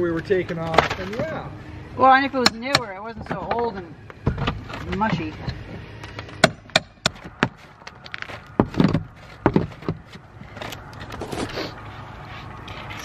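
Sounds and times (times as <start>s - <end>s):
hammer prying and scraping: 2.4s - 11.6s
hammer knocking on shingles: 8.6s - 10.1s.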